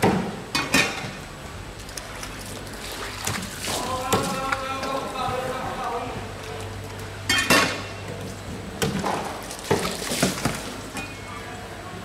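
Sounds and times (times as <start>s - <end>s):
water splashing on fish: 1.8s - 5.8s, 8.9s - 11.0s.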